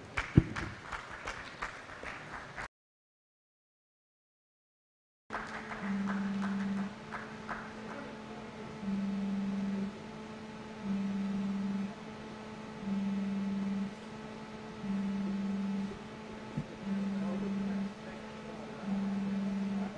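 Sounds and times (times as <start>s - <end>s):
steady electrical hum: 5.3s - 19.9s
low electronic beep: 12.6s - 19.9s.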